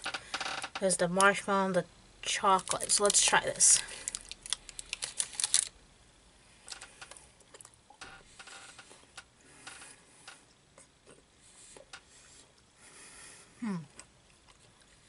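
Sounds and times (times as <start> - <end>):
wrapper crinkling: 2.3 - 5.8.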